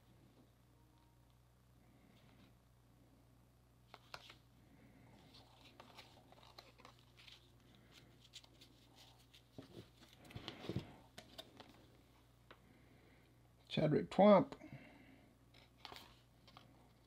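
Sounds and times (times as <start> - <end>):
cards rustling and thudding on table: 8.3 - 11.8.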